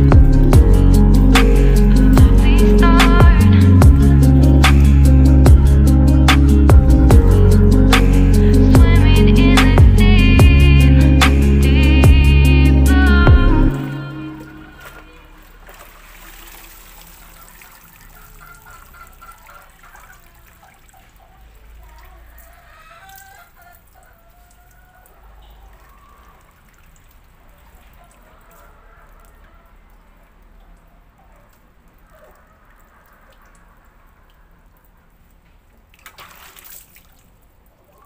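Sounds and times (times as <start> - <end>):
hands splashing water: 14.5 - 21.3, 35.8 - 37.4
water dripping into a bucket: 14.8 - 38.0.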